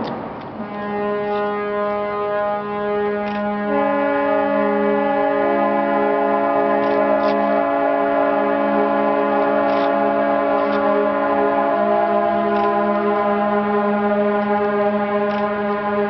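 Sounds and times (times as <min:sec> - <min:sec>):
ship's horns blowing long blasts: 0:00.5 - 0:16.0
rush of noise: 0:04.1 - 0:16.0.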